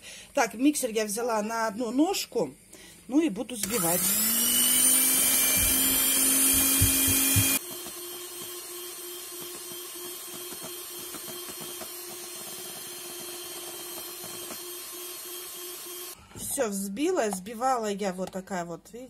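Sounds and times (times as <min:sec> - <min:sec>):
electric hand mixer whipping: 0:03.6 - 0:16.2.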